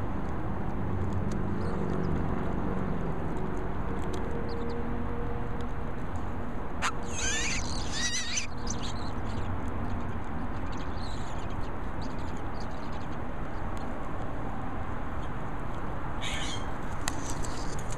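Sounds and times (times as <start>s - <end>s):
nestling birds begging calls: 6.8s - 9.5s, 16.2s - 17.8s.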